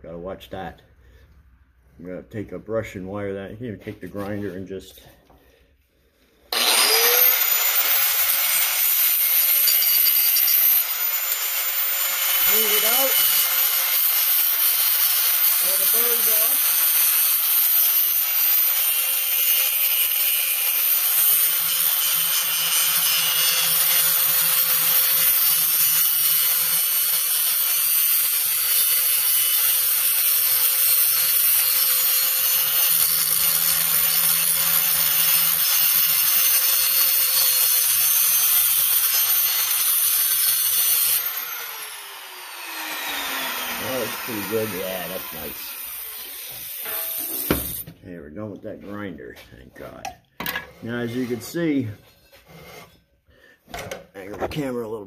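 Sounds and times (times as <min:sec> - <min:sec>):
grinder spinning down: 0:06.5 - 0:47.8
angle grinder grinding metal: 0:06.5 - 0:48.0, 0:50.8 - 0:53.0.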